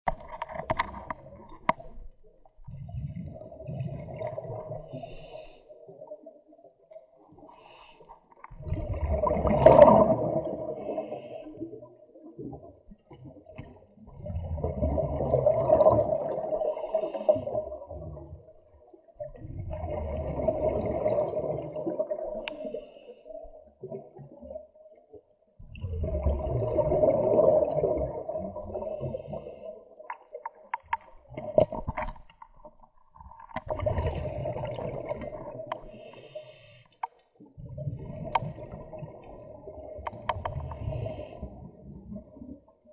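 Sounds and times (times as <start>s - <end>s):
diver's exhaled bubbles underwater: 0.1s - 7.7s, 8.4s - 36.1s, 37.4s - 42.9s.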